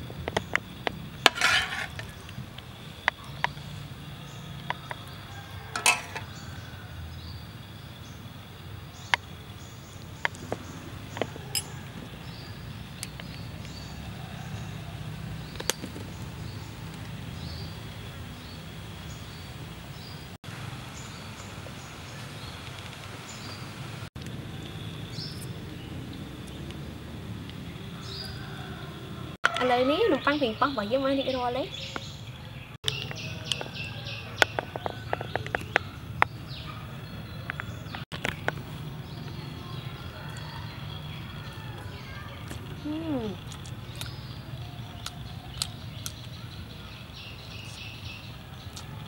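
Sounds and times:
insects chirping: 0:00.0 - 0:13.7
small birds chirping: 0:00.0 - 0:20.4, 0:21.0 - 0:26.9, 0:29.7 - 0:49.0.

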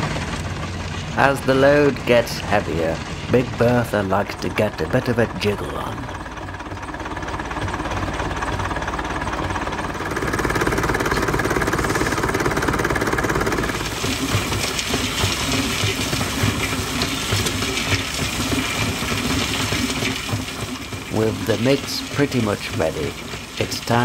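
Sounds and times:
tractor engine running: 0:00.0 - 0:24.0
wet concrete churning in drum: 0:09.3 - 0:24.0.

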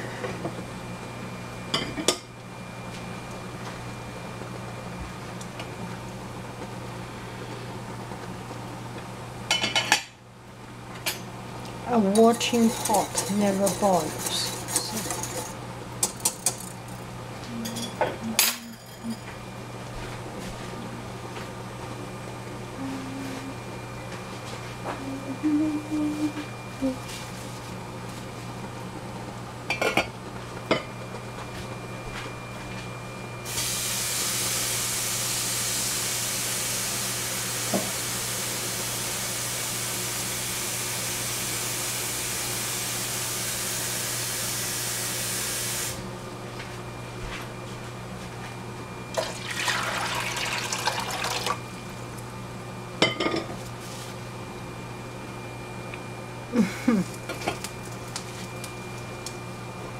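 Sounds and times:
steady low hum: 0:00.0 - 0:33.4, 0:51.5 - 0:59.9
kitchen tap running: 0:49.1 - 0:51.6.

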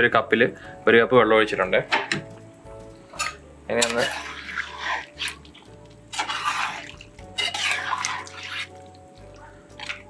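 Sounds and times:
spoon stirring wet curry: 0:03.2 - 0:10.0.

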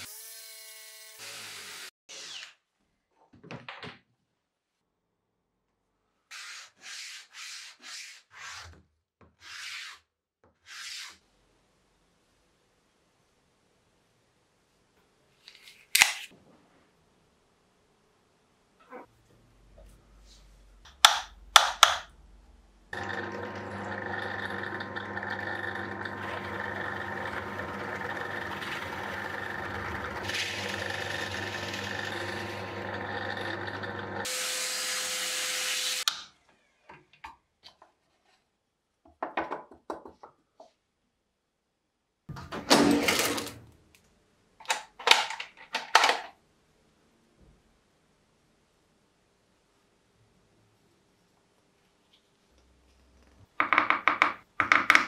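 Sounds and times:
drill press boring into wood: 0:23.0 - 0:35.1.

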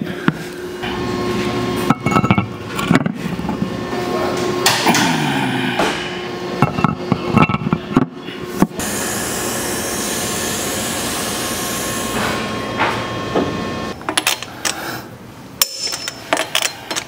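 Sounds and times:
metallic clinks and knocks: 0:15.6 - 0:17.0.

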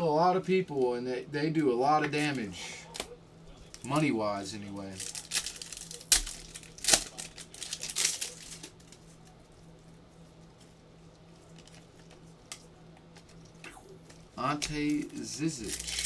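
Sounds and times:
faint low hum: 0:00.0 - 0:16.0
crinkly foil rustling: 0:03.6 - 0:13.4, 0:14.1 - 0:16.0
foil pack snapping: 0:05.0 - 0:09.0.

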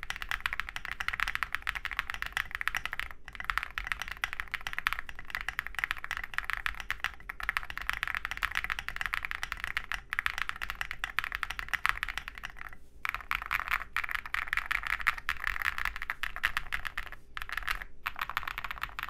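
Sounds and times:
mechanical keyboard typing: 0:00.0 - 0:19.0.

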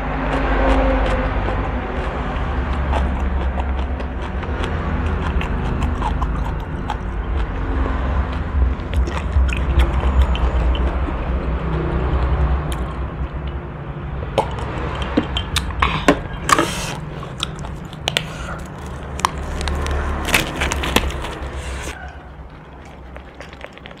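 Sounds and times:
low background rumble: 0:00.0 - 0:24.0
plastic gloves crackling: 0:18.1 - 0:21.9.

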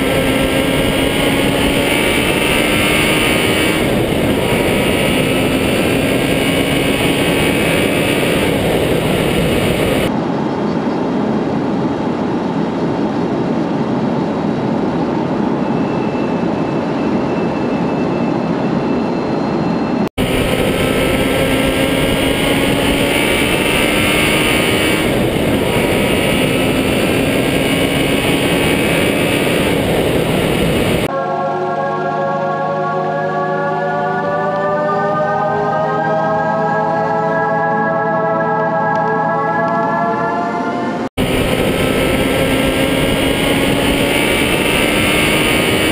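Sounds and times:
vehicle engine running: 0:00.0 - 0:10.1, 0:20.2 - 0:31.1, 0:41.1 - 0:45.9
road and wind noise: 0:00.0 - 0:45.9.

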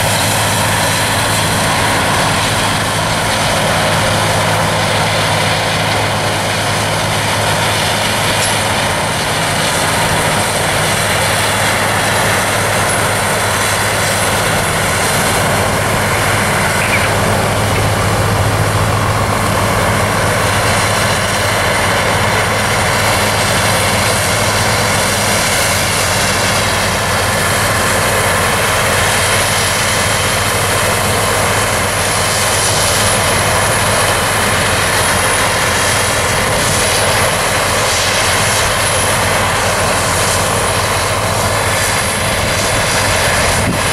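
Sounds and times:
even rushing noise: 0:00.0 - 0:43.9
low engine hum: 0:00.0 - 0:43.9.

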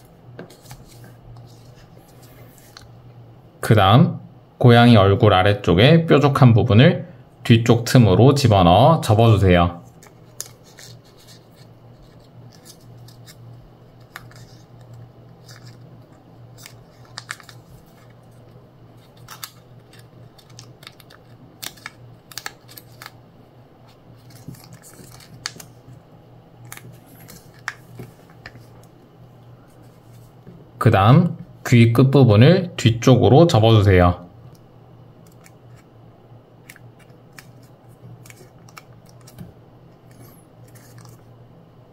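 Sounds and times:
low steady hum: 0:00.0 - 0:41.9
paper crackling and rustling: 0:00.4 - 0:02.9, 0:09.8 - 0:23.2, 0:23.8 - 0:26.0, 0:26.6 - 0:28.9, 0:36.6 - 0:41.3.

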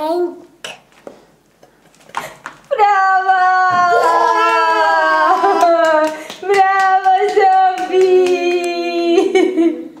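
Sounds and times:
hands clapping: 0:05.4 - 0:09.0.

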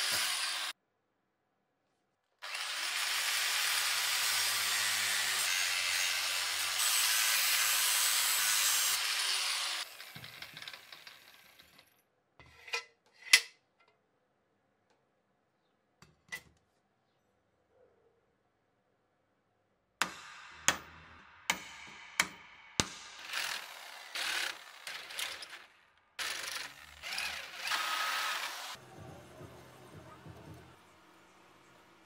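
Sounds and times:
power tool working metal: 0:00.0 - 0:00.7, 0:02.4 - 0:11.7, 0:23.2 - 0:28.8.

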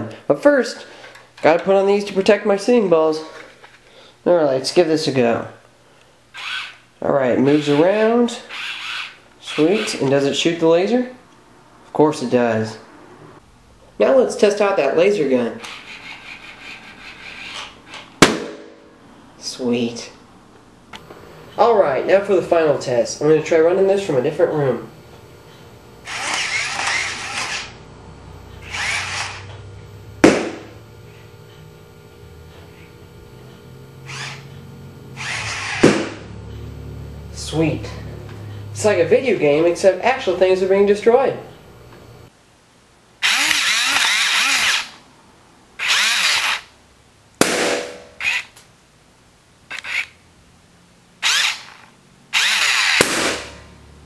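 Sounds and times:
toy robot gear motors whirring: 0:06.3 - 0:06.8, 0:07.4 - 0:10.0, 0:15.6 - 0:18.1, 0:26.0 - 0:27.8, 0:28.6 - 0:29.6, 0:34.1 - 0:34.6, 0:35.2 - 0:35.9, 0:43.2 - 0:45.0, 0:45.8 - 0:46.7, 0:48.2 - 0:48.6, 0:49.7 - 0:50.2, 0:51.2 - 0:53.6
balloon popping: 0:30.2 - 0:30.8, 0:35.6 - 0:36.3, 0:52.9 - 0:53.5.

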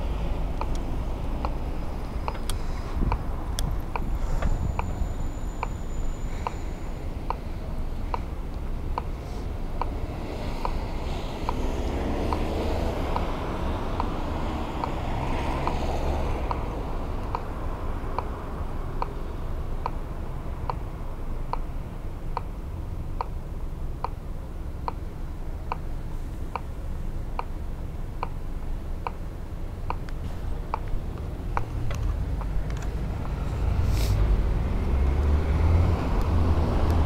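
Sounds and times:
low traffic rumble: 0:00.0 - 0:37.0
crossing signal ticking: 0:00.1 - 0:33.9.

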